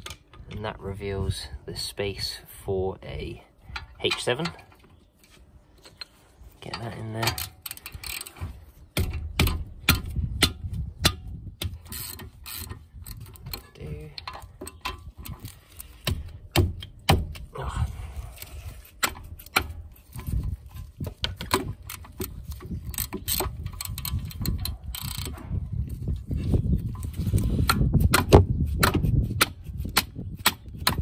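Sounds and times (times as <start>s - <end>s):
hand ratchet clicking: 7.2s - 8.4s, 21.4s - 25.3s.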